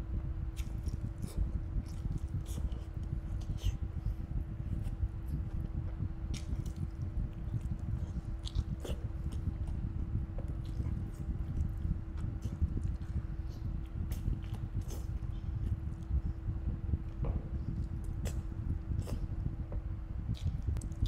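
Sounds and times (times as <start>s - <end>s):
low steady hum: 0.0s - 21.0s
person biting and chewing: 0.6s - 3.8s, 6.3s - 9.8s.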